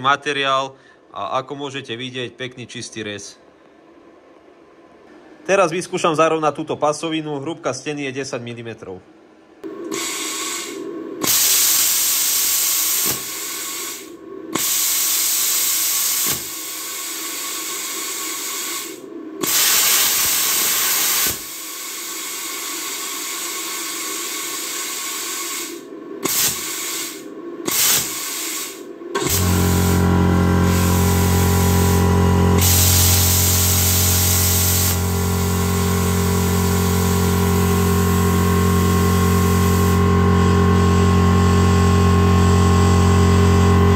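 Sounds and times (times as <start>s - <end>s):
compressed-air hiss bursts: 9.9s - 32.0s, 32.6s - 38.0s, 39.1s - 40.0s
plasma cutting buzzing hiss: 9.9s - 40.1s.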